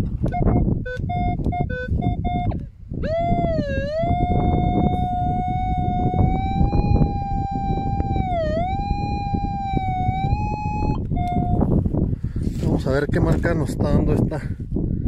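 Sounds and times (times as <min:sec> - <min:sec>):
metal detector tone: 0:00.2 - 0:11.7.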